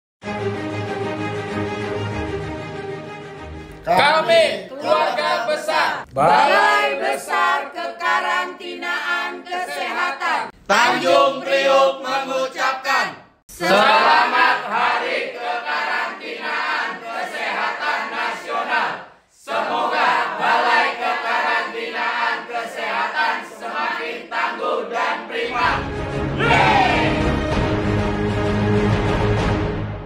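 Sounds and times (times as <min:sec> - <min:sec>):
music: 0:00.2 - 0:04.2, 0:25.4 - 0:30.0
people chanting in unison: 0:04.4 - 0:27.9.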